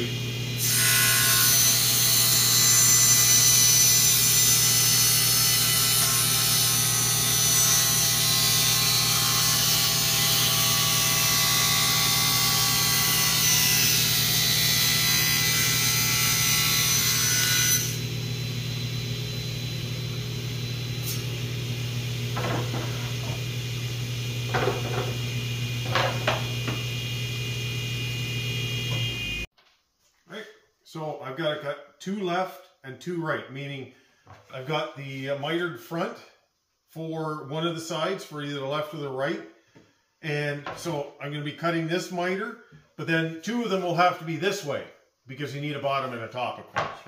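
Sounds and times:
table saw cutting wood: 0.0 - 29.5.

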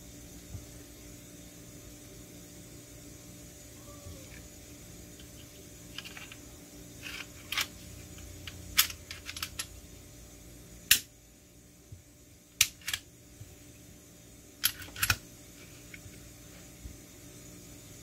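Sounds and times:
pistol parts clicking: 8.5 - 9.7, 12.6 - 13.0, 14.6 - 15.2.

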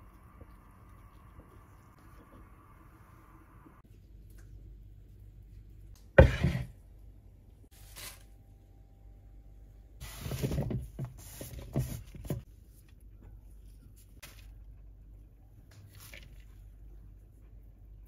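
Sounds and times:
knocks and scrapes: 6.2 - 6.8.

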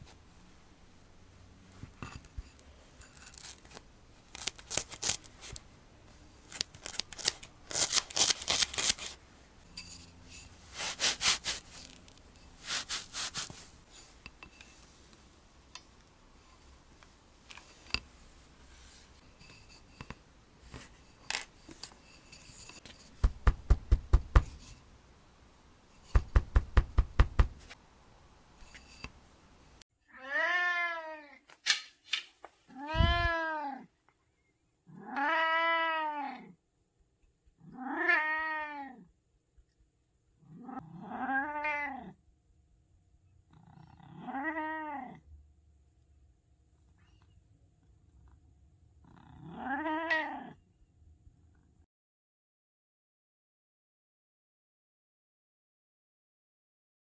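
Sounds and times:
cat meowing: 30.1 - 31.4, 32.7 - 33.9, 35.0 - 36.6, 37.7 - 39.1, 40.8 - 42.2, 44.1 - 45.2, 49.4 - 50.6.

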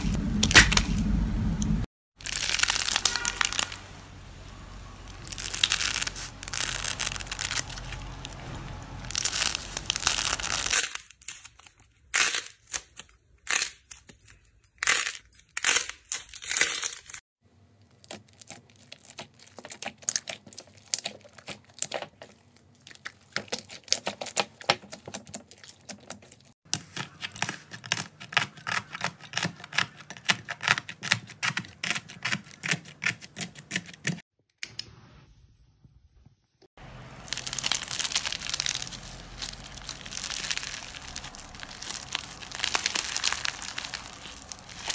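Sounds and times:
slime crackling: 2.2 - 11.0, 17.9 - 26.5, 36.9 - 44.9
scissors cutting crunchy slime: 17.9 - 34.2.

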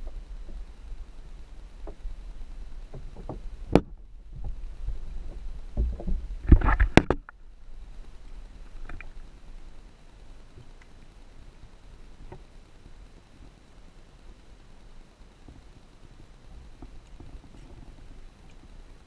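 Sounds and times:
water movement: 0.0 - 19.0
underwater knocks: 2.9 - 7.3.

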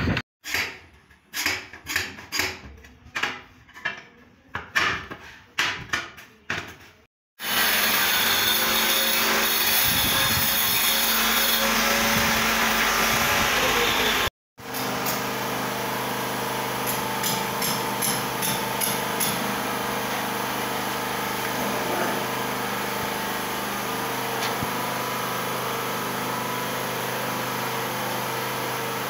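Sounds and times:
angle grinder cutting tile: 7.4 - 15.4, 16.8 - 29.0.

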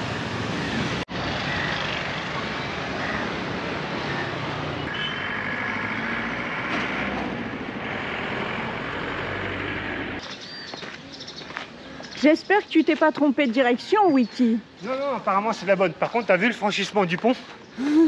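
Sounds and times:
city traffic: 0.0 - 18.0.

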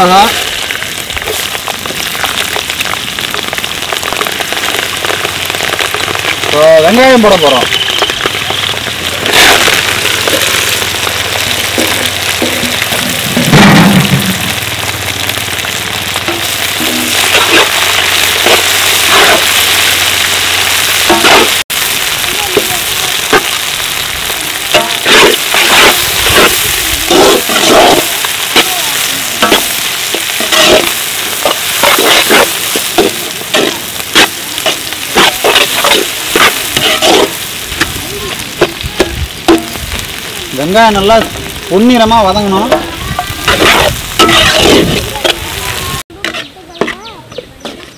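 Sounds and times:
onions sizzling in hot oil: 0.0 - 47.9
metal ladle scraping pan: 29.4 - 37.4, 42.7 - 45.4.

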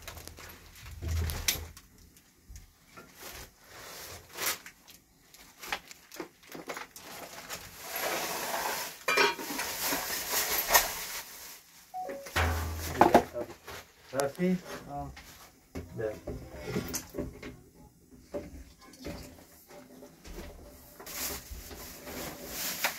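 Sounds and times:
rustling: 20.4 - 22.9.

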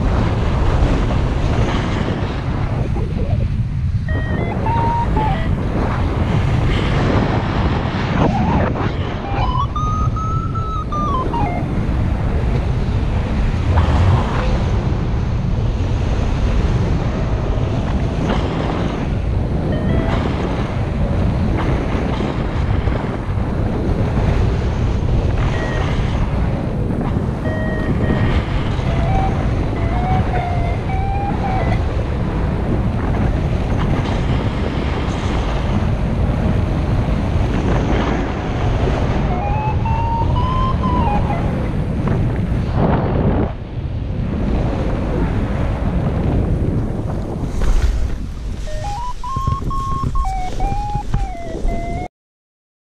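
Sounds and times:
wind buffeting microphone: 0.0 - 52.1
faint gliding whistling tones: 4.1 - 5.6, 8.2 - 11.7, 27.4 - 31.9, 39.2 - 41.7, 48.6 - 52.1.

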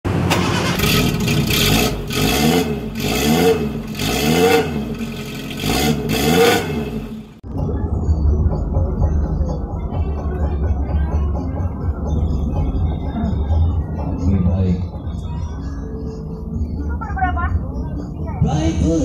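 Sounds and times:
engine revving: 0.1 - 7.4.

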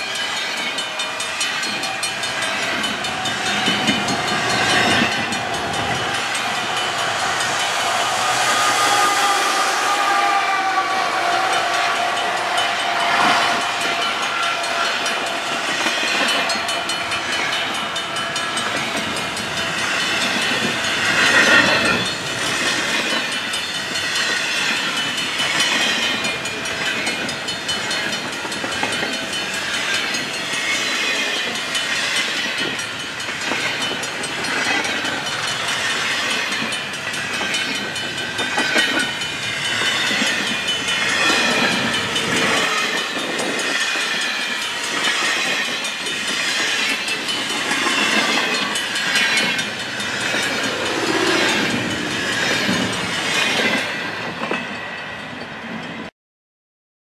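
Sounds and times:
train wheels clattering on rails: 0.0 - 56.1
high-pitched wheel squeals: 1.8 - 19.3, 38.6 - 53.9.

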